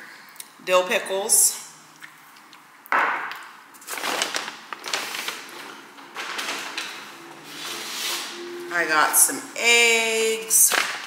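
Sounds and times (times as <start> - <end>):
paper bag rustling: 3.8 - 8.6.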